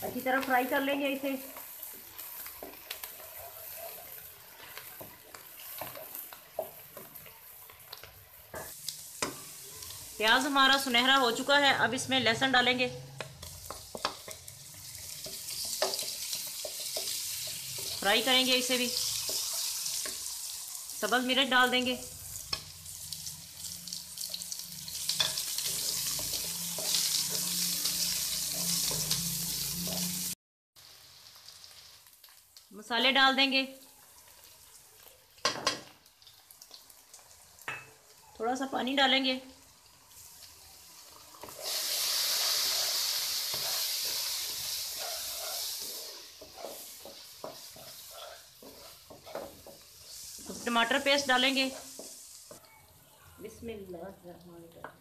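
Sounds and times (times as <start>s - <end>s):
onions sizzling in hot oil: 0.0s - 55.0s
wooden spatula scraping a pan: 25.2s - 30.3s, 41.4s - 51.0s.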